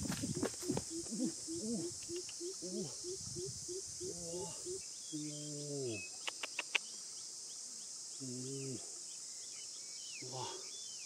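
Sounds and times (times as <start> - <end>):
insects hissing: 0.0 - 11.0
sharp clicks: 6.2 - 6.8.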